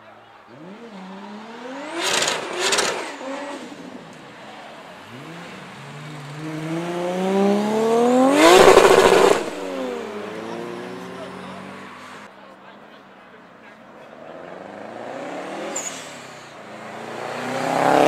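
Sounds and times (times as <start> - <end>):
car accelerating past: 0.4 - 12.3, 14.2 - 18.0
engine revving in bursts: 0.5 - 4.3, 5.0 - 12.3, 14.6 - 18.0.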